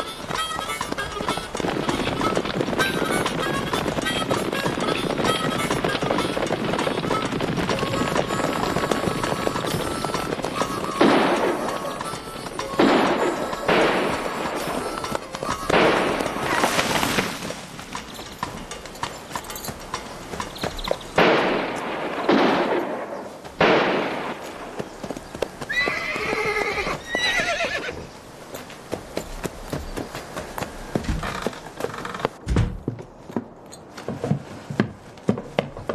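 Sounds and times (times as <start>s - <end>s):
horse whinnying: 25.7s - 28.0s.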